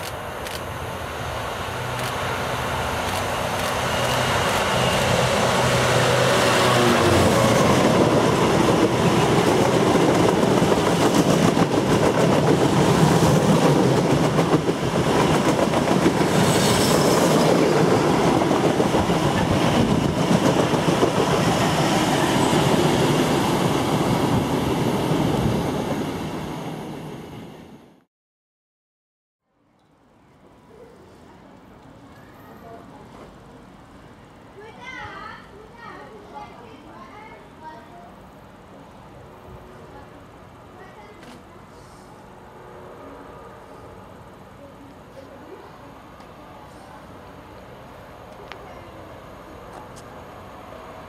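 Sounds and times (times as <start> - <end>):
diesel locomotive passing: 0.0 - 28.1, 41.6 - 51.0.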